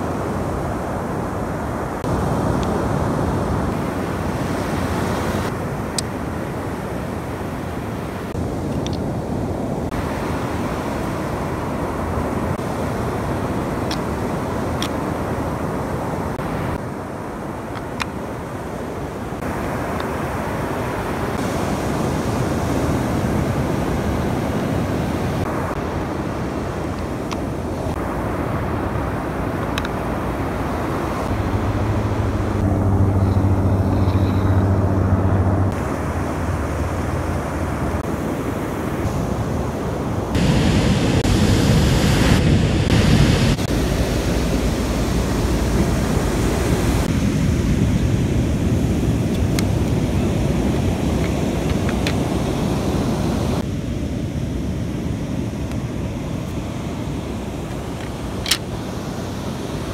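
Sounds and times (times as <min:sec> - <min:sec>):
ocean surf breaking: 0:00.0 - 0:59.9
wind buffeting microphone: 0:00.0 - 0:59.9
low hum: 0:27.9 - 0:48.8.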